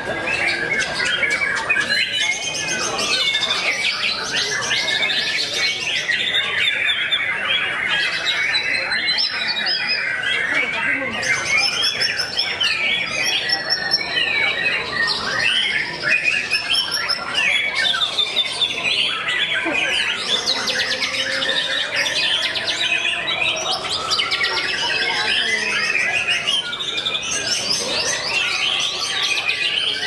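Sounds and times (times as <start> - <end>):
caged birds singing: 0.0 - 30.0.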